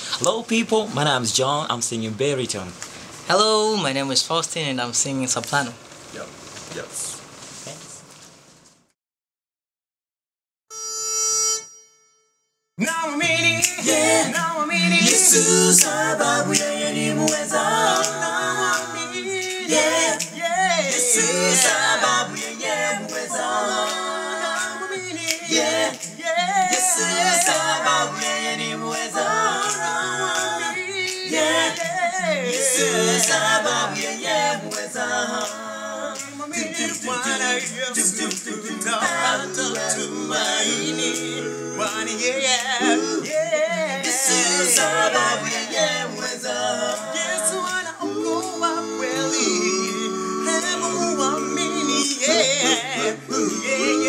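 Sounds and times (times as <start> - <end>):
a cappella group singing in harmony: 0.0 - 0.3, 12.8 - 54.0.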